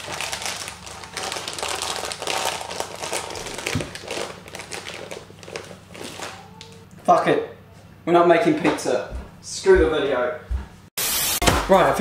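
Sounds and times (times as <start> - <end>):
plastic packet crinkling: 0.0 - 6.8.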